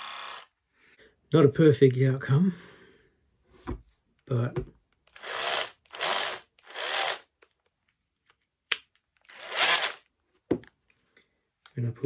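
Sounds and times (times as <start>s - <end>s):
cordless drill motor bursts: 0.0s - 0.5s, 5.1s - 7.3s, 9.3s - 10.0s.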